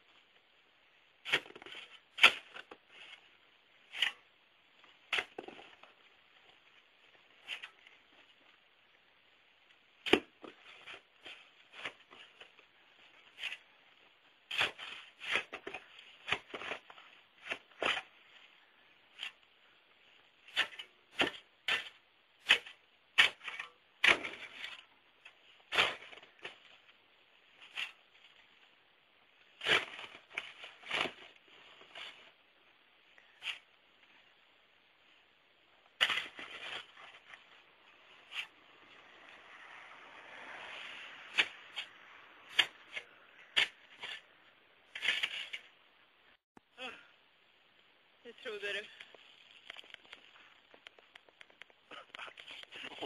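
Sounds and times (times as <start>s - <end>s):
sharp crunches and clicks: 48.9s - 53.0s.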